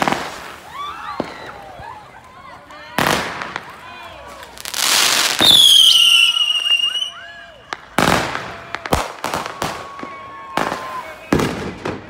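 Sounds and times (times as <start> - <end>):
fireworks bangs and crackles: 0.0 - 12.0
firework whistle: 4.8 - 7.5.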